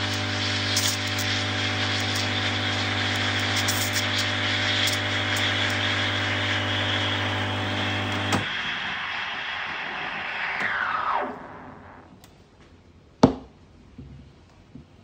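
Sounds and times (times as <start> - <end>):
espresso pump humming: 0.0 - 11.3
steam wand hissing in milk: 0.0 - 12.0.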